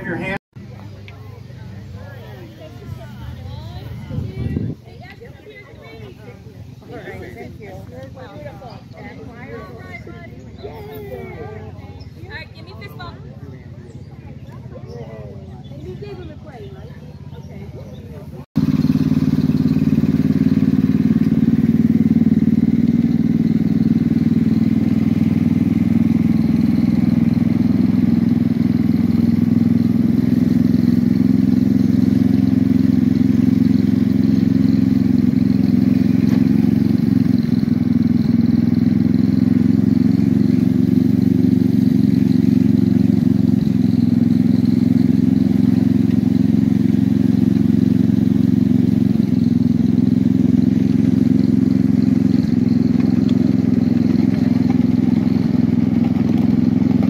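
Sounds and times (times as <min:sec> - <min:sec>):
miniature locomotive engine running: 0:18.6 - 0:57.0.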